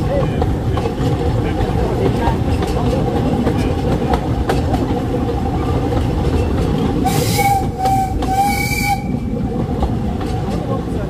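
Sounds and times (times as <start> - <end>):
train rumble and rail clatter: 0.0 - 11.0
steam locomotive whistle: 7.0 - 9.3.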